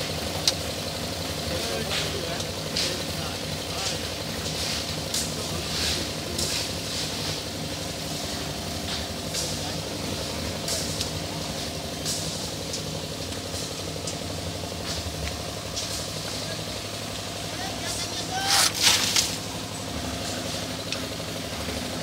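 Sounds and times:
engine running steadily: 0:00.0 - 0:22.0
shovels scraping and clinking: 0:18.4 - 0:19.4.

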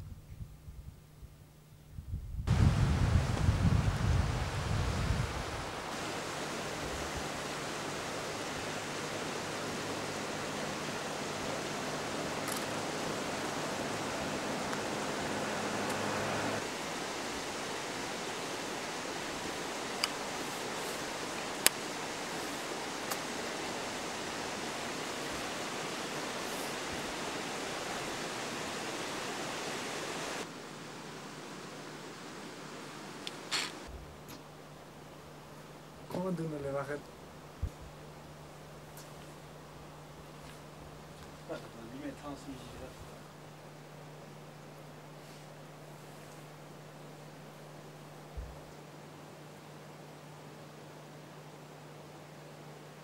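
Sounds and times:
steady rushing noise: 0:02.5 - 0:33.1
faint hiss: 0:02.5 - 0:53.0.

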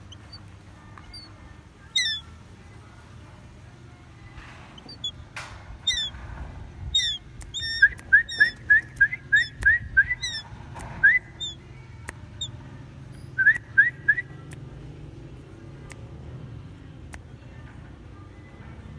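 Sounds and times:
bird whistling calls: 0:01.9 - 0:02.3, 0:05.8 - 0:06.2, 0:06.9 - 0:11.6.

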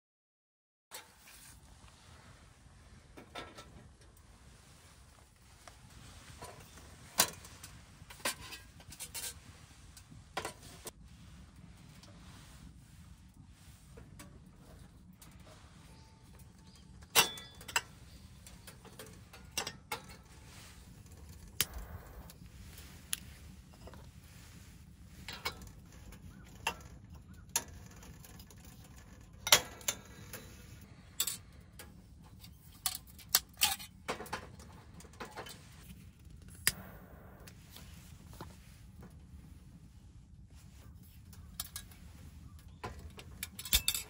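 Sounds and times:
oil lantern metal parts clinking: 0:06.0 - 0:10.9, 0:14.0 - 0:36.8, 0:41.2 - 0:44.0.

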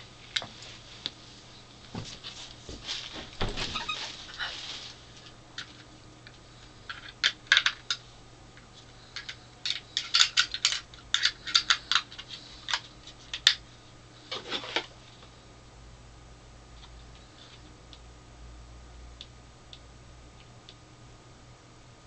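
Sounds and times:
plastic parts clicking and clattering: 0:06.9 - 0:08.0, 0:09.2 - 0:13.6.

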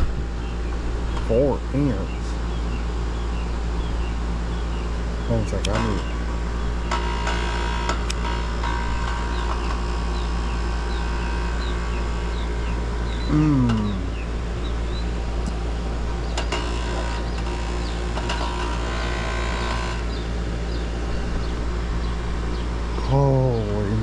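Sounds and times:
air conditioner humming: 0:00.0 - 0:24.0
small birds chirping: 0:00.2 - 0:07.0, 0:09.2 - 0:24.0
short sound falling in pitch: 0:13.3 - 0:14.1.

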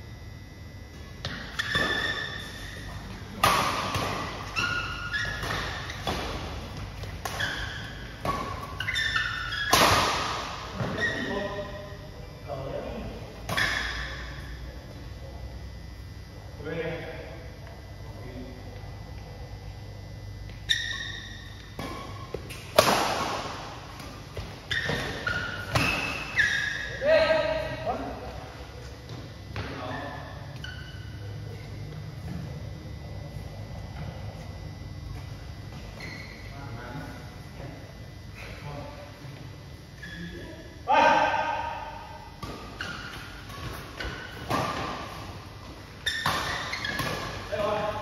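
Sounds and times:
shoes squeaking on court: 0:00.9 - 0:11.6, 0:20.4 - 0:27.0, 0:28.7 - 0:37.3, 0:42.3 - 0:48.0
racket striking shuttlecock: 0:03.4 - 0:10.7, 0:21.7 - 0:26.4.

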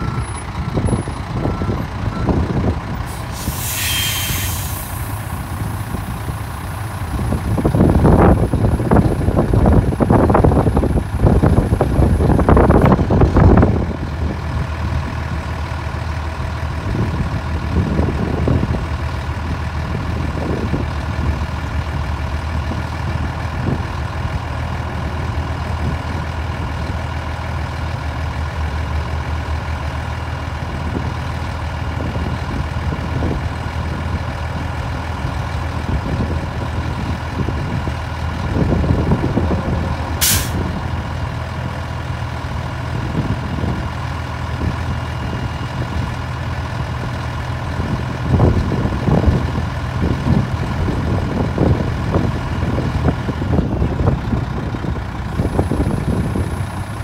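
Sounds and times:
truck diesel engine idling: 0:00.0 - 0:57.0.

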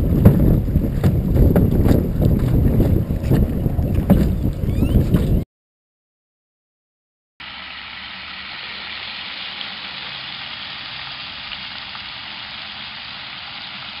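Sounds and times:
hot oil sizzling: 0:07.4 - 0:14.0.

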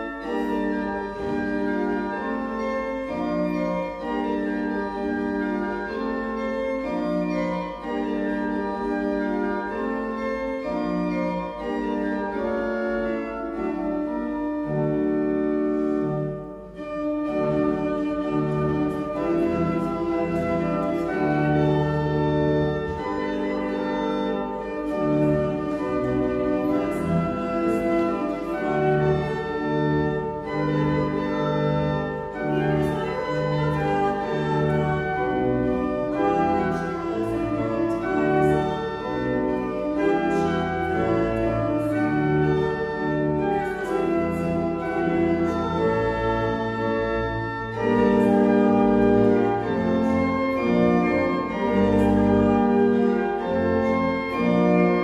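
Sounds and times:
church organ playing: 0:00.0 - 0:55.0.

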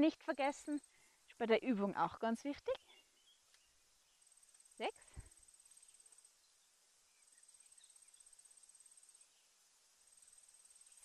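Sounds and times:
quiet outdoor background: 0:00.0 - 0:11.0
high-pitched insect trill: 0:04.0 - 0:11.0.

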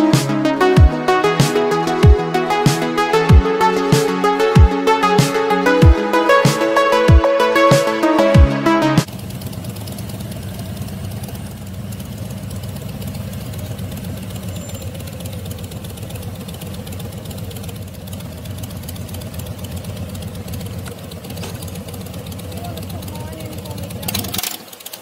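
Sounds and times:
motorcycle engine at low revs: 0:09.0 - 0:25.0.

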